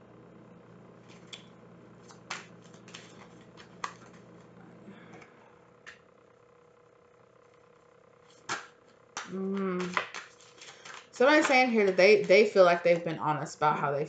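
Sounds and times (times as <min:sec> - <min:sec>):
cards shuffling: 0:01.0 - 0:04.6, 0:08.2 - 0:13.0.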